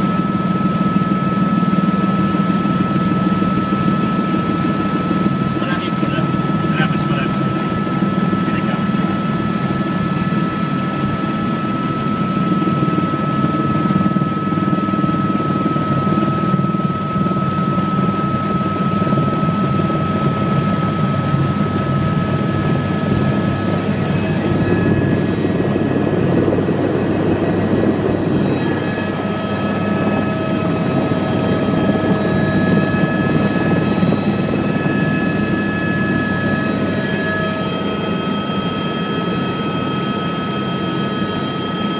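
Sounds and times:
helicopter engine and rotor rumble: 0.0 - 41.9
high-pitched whine: 18.6 - 26.7, 27.7 - 41.9.

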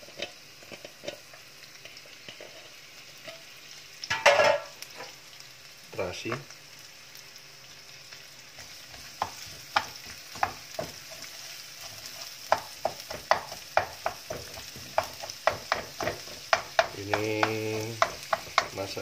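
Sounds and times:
spatula scraping a wok: 0.0 - 3.5, 8.6 - 19.0
oil sizzling: 0.0 - 19.0.

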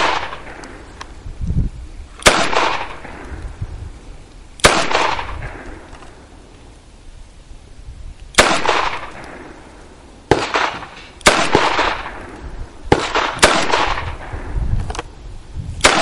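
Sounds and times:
gunshots with echo: 2.2 - 3.2, 10.3 - 12.3, 12.9 - 14.5.

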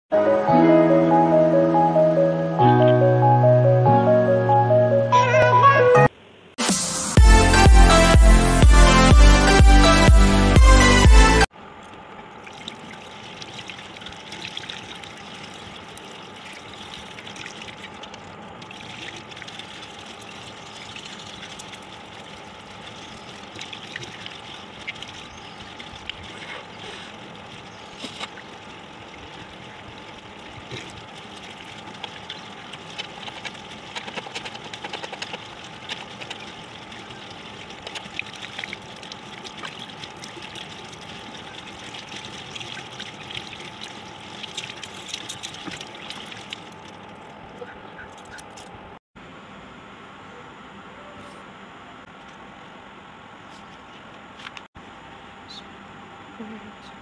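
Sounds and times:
water trickling: 11.8 - 47.5
small water splashes: 11.9 - 47.3.

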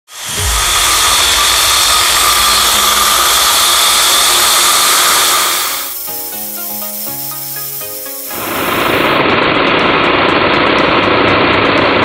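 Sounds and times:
core drill boring into concrete: 0.1 - 7.6.

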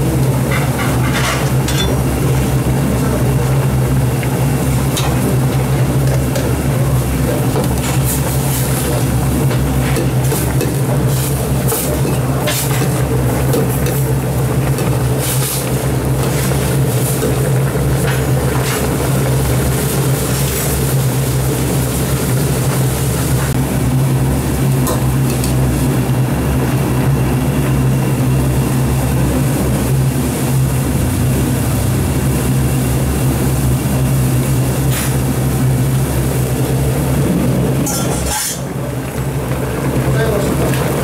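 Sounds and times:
low mechanical hum: 0.0 - 41.0
stew boiling hard: 0.0 - 41.0.

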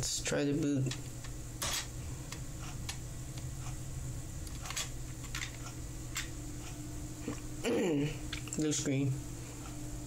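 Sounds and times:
computer humming: 0.0 - 10.0
hard drive clicks: 0.6 - 3.8.

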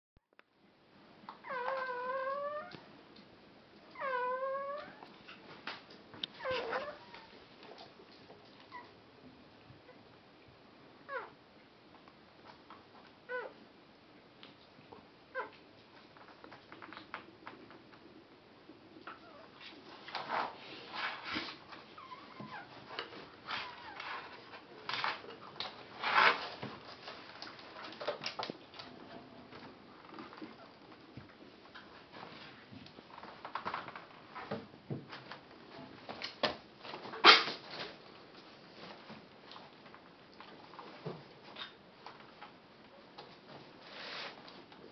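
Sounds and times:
faint squeaks: 6.4 - 7.4, 19.0 - 26.6
dog rustling and rubbing: 19.6 - 28.2, 43.7 - 44.7.

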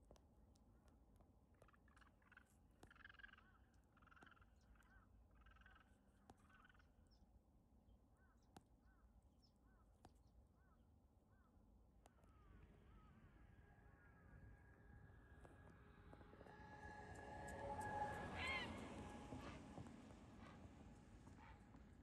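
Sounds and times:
distant harsh caw-like bird calls: 12.1 - 14.8, 16.5 - 19.7.

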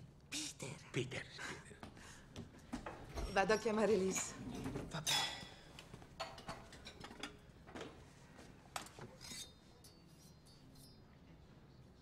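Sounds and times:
dishes and utensils clinking: 3.2 - 5.6, 6.2 - 7.5, 8.8 - 11.4.

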